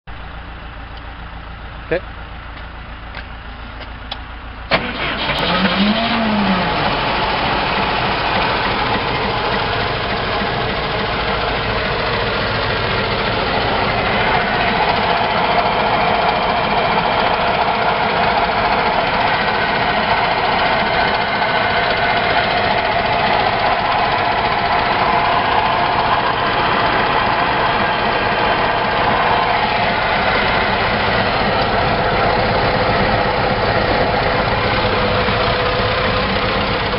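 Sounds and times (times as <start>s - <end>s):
engine starting and running: 0.1s - 36.9s
engine starter click: 4.1s - 6.3s.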